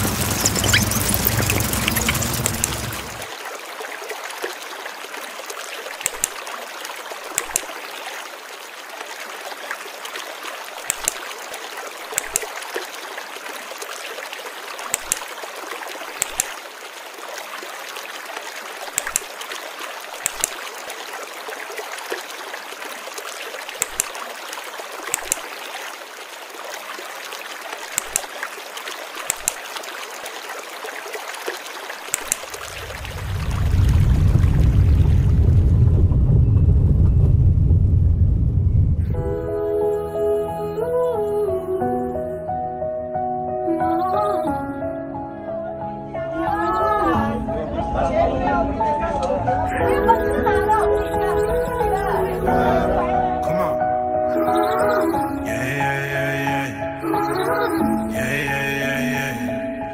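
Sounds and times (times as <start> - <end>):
stream water flowing: 0.0 - 36.0, 46.3 - 59.9
loud low rumble: 32.8 - 39.3.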